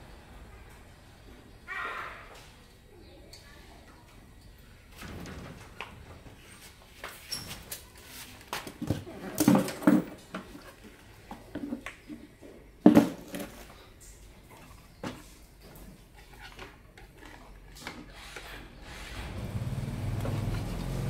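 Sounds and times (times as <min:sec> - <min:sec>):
tools clattering on wooden workbench: 0:08.6 - 0:13.8.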